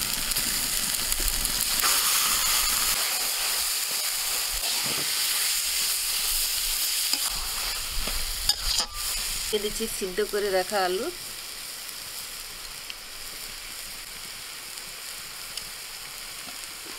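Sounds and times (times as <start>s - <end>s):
food sizzling in hot oil: 0.0s - 16.9s
metal spatula stirring in pan: 1.8s - 6.2s, 6.8s - 9.4s.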